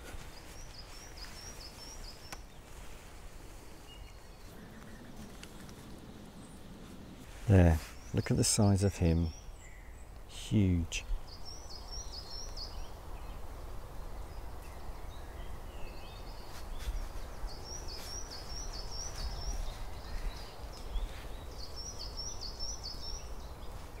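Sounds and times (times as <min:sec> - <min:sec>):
songbird singing: 0:00.0 - 0:24.0
low steady rumble: 0:04.5 - 0:07.6.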